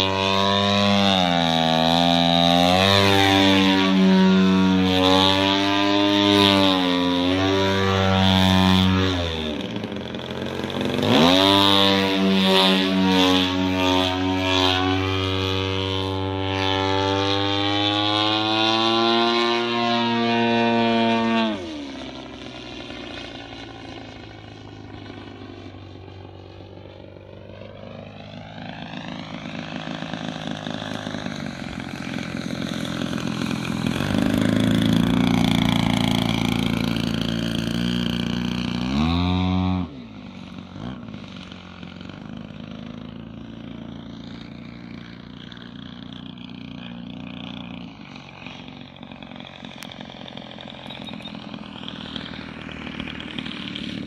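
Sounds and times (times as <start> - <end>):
model plane motor and propeller: 0.0 - 54.0.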